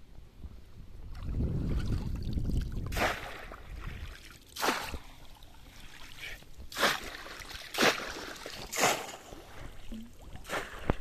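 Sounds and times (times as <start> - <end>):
water trickling: 3.8 - 10.4
basket splashing into water: 6.7 - 9.8.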